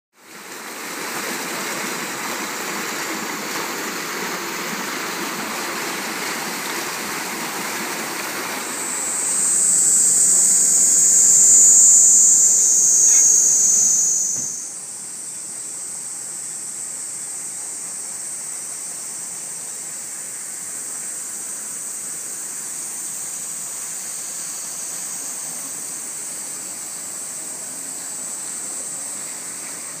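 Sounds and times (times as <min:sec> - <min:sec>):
floodwater rushing: 0:00.4 - 0:10.6
high insect buzz: 0:01.7 - 0:30.0.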